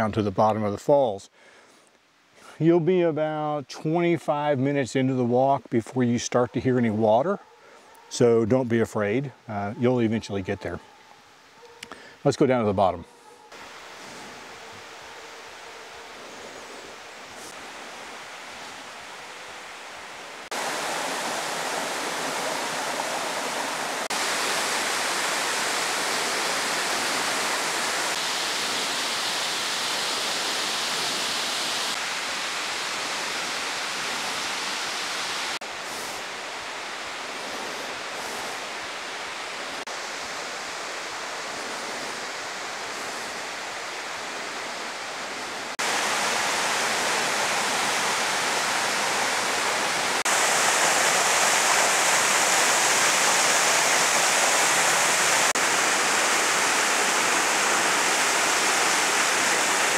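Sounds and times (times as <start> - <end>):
creek and waterfall rushing: 13.5 - 59.9.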